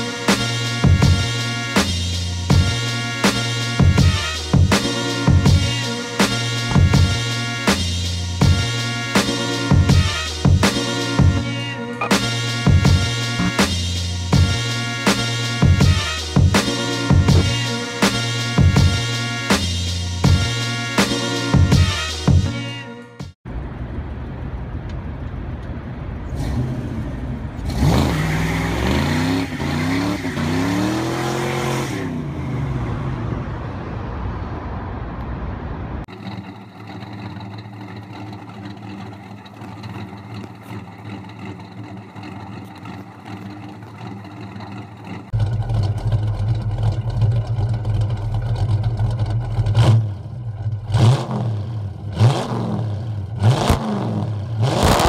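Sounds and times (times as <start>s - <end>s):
car engine revving: 0.0s - 22.5s, 23.5s - 55.0s
car engine idling: 32.2s - 52.3s.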